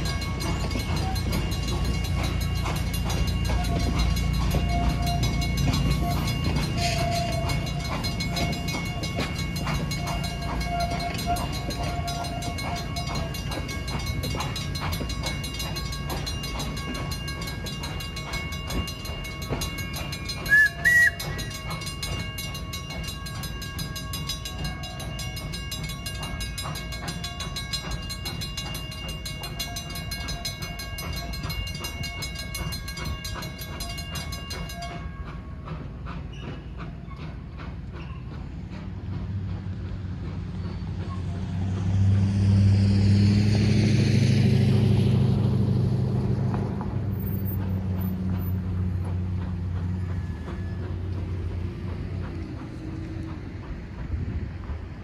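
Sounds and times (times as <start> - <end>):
crossing bells ringing: 0.0 - 55.0
railcars rumbling past: 0.0 - 55.0
high-pitched horn toots: 4.6 - 9.3.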